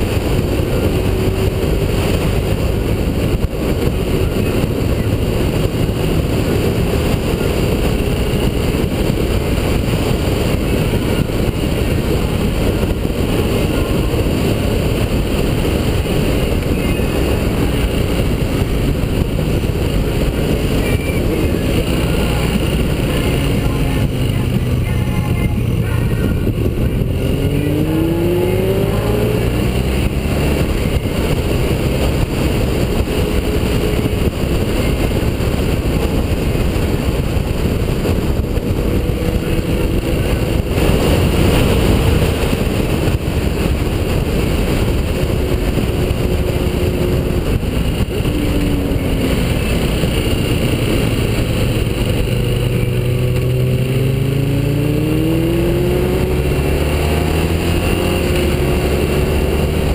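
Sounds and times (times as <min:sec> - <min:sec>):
motorcycle engine accelerating: 0:00.0 - 0:59.9
wind rush: 0:00.0 - 0:59.9.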